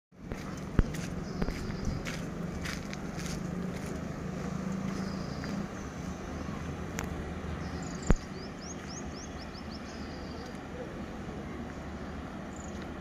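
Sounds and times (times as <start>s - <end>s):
electric locomotive hum: 0.2s - 13.0s
bird chirping: 0.5s - 2.2s, 7.5s - 10.8s.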